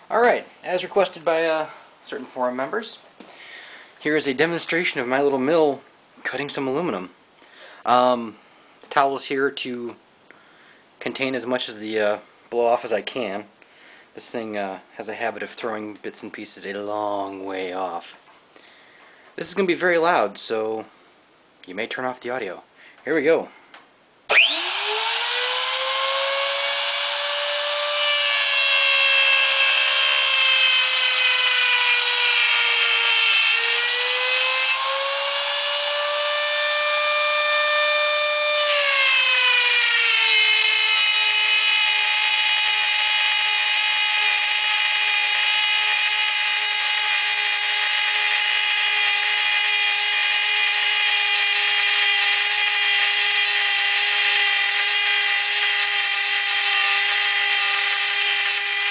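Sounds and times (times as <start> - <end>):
end mill cutting metal: 24.3 - 58.9
mill spindle motor whining: 24.3 - 58.9.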